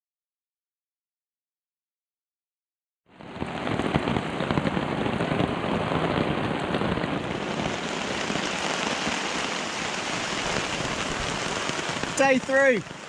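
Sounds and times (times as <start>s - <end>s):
heavy rain: 3.1s - 13.0s.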